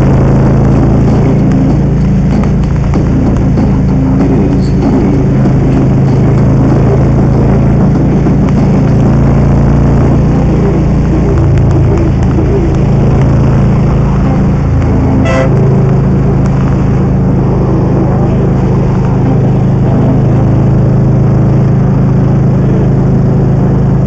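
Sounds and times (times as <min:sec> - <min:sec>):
motorcycle engine running: 0:00.0 - 0:24.0
short horn beep: 0:15.2 - 0:15.6.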